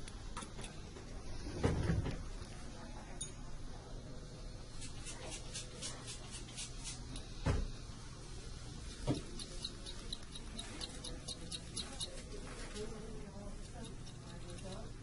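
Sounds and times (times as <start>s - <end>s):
dental instrument scraping teeth: 4.7s - 7.2s, 9.1s - 15.0s.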